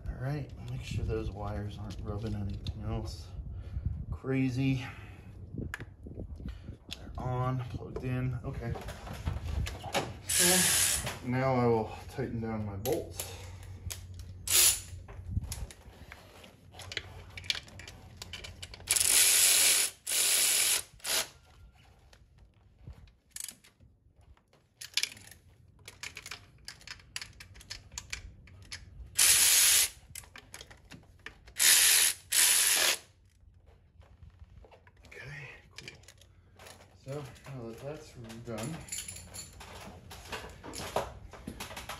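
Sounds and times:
ratchet clicking: 0:18.8 - 0:21.3, 0:29.2 - 0:30.0, 0:31.6 - 0:33.0.

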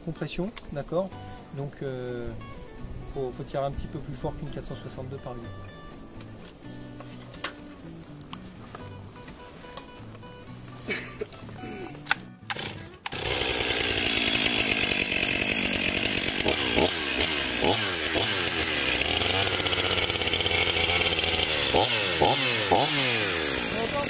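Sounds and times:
chainsaw engine revving: 0:11.6 - 0:24.0
recoil starter pull: 0:12.0 - 0:24.0.

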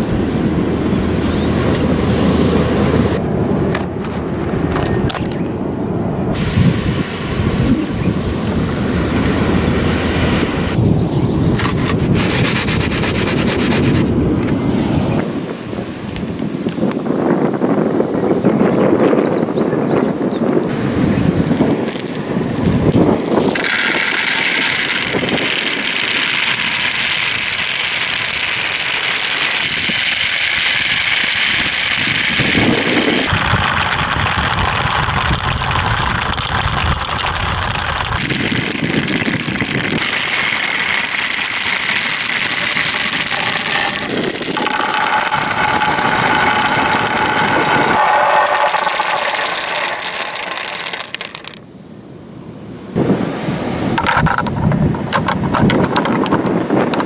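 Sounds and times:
plastic balls rattling down chutes: 0:21.6 - 0:51.6, 0:54.0 - 0:57.0.

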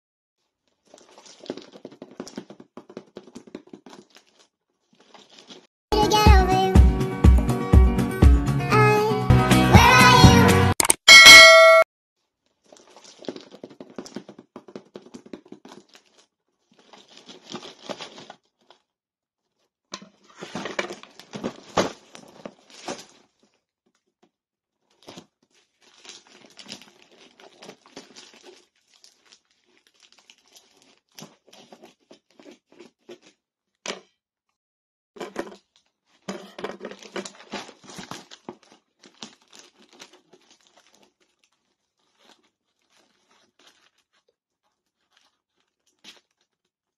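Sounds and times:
plastic bag crinkling and tearing: 0:00.4 - 0:05.7, 0:12.2 - 0:18.9, 0:20.1 - 0:24.1, 0:24.8 - 0:33.5, 0:35.2 - 0:46.9.

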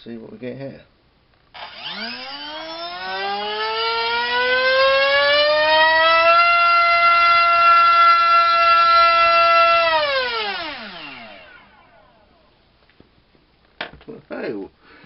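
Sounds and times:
brushless motor whining: 0:01.6 - 0:04.0, 0:06.2 - 0:12.0.

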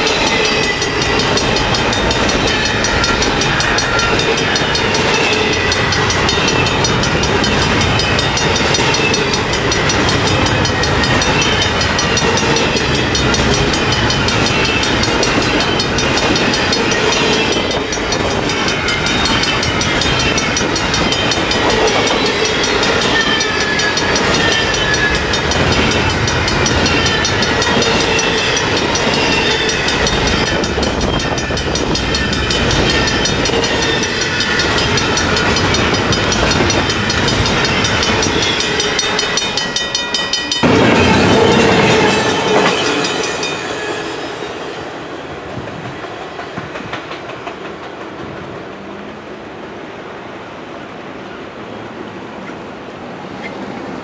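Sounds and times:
high wheel squeals: 0:00.0 - 0:44.8
freight train wheels rumbling: 0:00.0 - 0:54.0.

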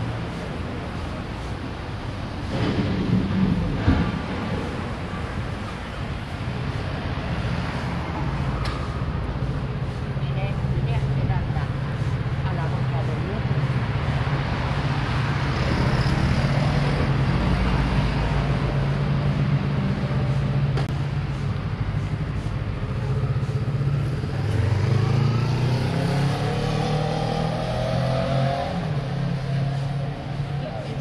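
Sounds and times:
traffic engine hum: 0:00.0 - 0:31.0
engine accelerating: 0:22.3 - 0:31.0.

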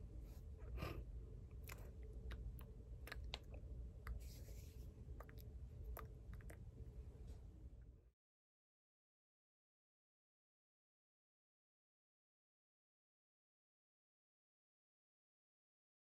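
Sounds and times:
low room hum: 0:00.0 - 0:08.2
hand and mouth clicks: 0:01.6 - 0:04.2
hands brushing together: 0:04.1 - 0:05.0.

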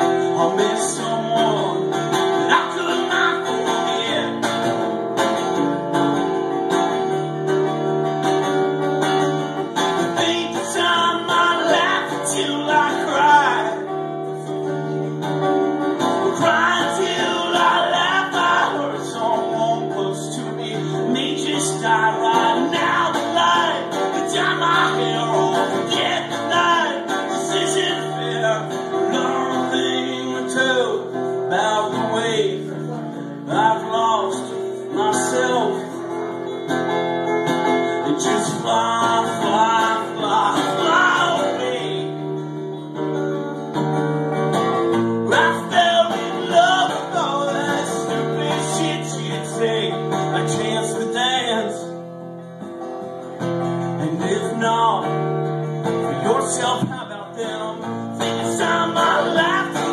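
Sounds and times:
man singing: 0:00.0 - 0:04.7, 0:09.8 - 0:14.0, 0:16.2 - 0:36.0, 0:38.0 - 0:42.4, 0:45.2 - 0:52.0, 0:54.0 - 0:55.2, 0:56.0 - 0:59.9
acoustic guitar strumming: 0:00.0 - 0:59.9.

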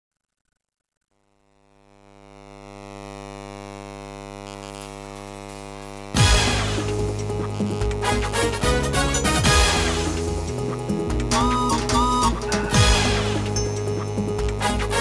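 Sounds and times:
steady electronic hum: 0:01.2 - 0:15.0
loud music: 0:06.2 - 0:15.0.

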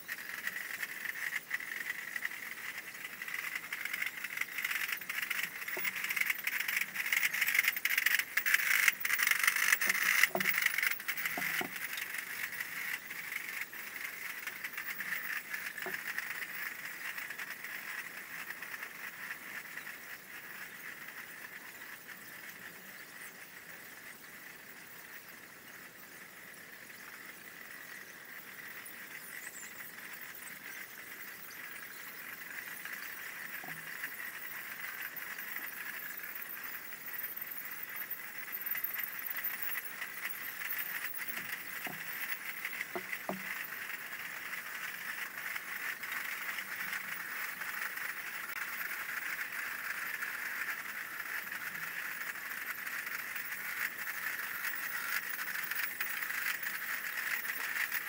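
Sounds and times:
drum rattle: 0:00.2 - 0:17.4, 0:37.6 - 0:50.2.

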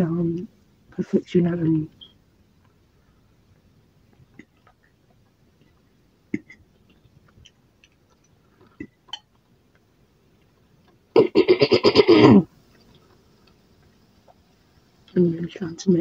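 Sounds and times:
person burping: 0:06.3 - 0:06.6, 0:11.1 - 0:12.5.

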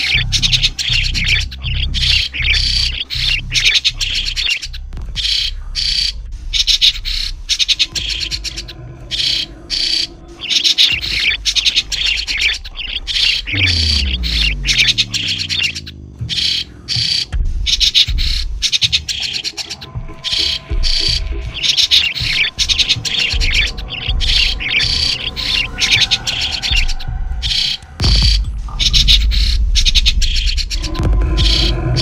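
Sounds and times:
low rumble: 0:00.0 - 0:32.0
starlings calling: 0:00.0 - 0:32.0
low tone falling in pitch: 0:11.0 - 0:16.8.

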